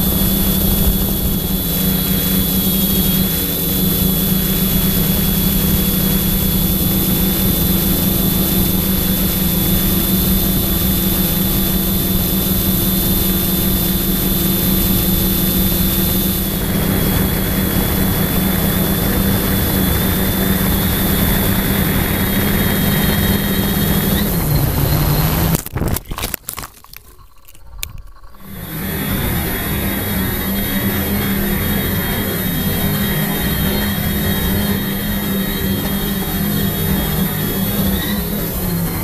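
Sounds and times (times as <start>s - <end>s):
quadcopter motors humming: 0.0s - 26.0s, 27.6s - 39.0s
quadcopter crashing: 0.0s - 39.0s.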